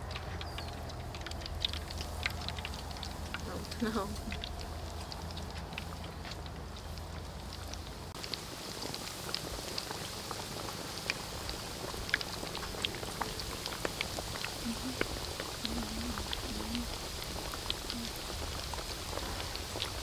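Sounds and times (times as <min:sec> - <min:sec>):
food deep-frying in oil: 0:00.0 - 0:20.0.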